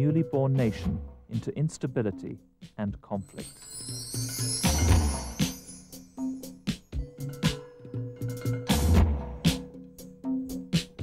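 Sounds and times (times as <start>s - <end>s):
background music with drums and bass: 0.0s - 11.0s.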